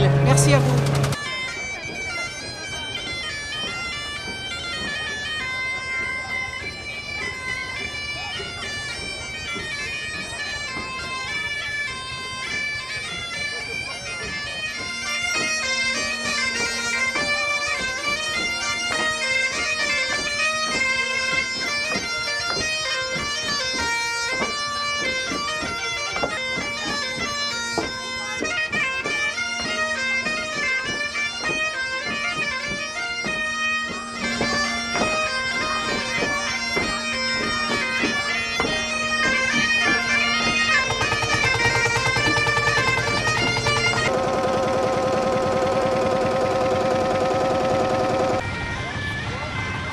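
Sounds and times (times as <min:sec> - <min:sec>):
steady buzzing: 0:00.0 - 0:01.2, 0:40.6 - 0:48.4
bagpipes playing dance tune: 0:00.0 - 0:49.7.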